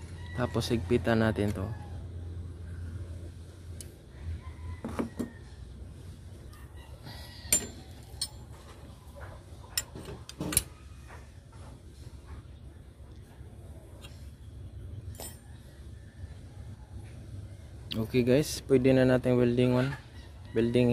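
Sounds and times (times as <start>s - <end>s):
sharp metal knocks: 7.5s - 8.4s
metal parts clicking and clinking: 7.5s - 8.8s, 15.1s - 15.5s.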